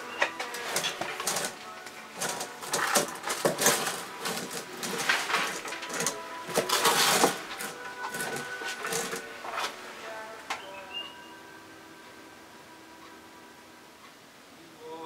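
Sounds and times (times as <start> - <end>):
sleeving rustling and crinkling: 0.0 - 10.3.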